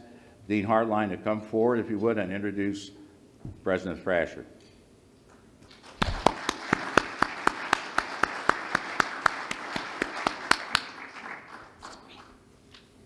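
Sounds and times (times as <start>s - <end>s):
man clapping close to microphone: 5.7s - 12.3s
audience applause: 5.8s - 12.3s.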